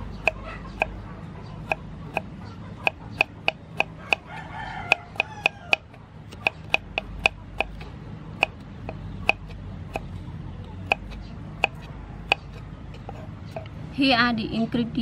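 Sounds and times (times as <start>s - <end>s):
knife chopping on wooden board: 0.2s - 1.0s, 1.6s - 4.3s, 4.9s - 10.1s, 10.8s - 13.6s.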